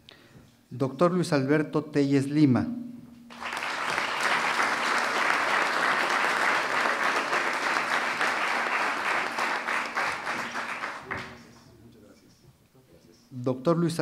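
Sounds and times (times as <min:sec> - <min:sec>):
audience applauding: 0:03.3 - 0:11.6.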